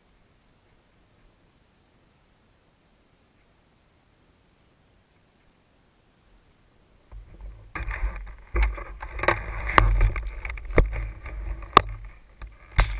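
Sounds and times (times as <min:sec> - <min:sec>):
rubbing and scraping on microphone: 0:07.1 - 0:12.9.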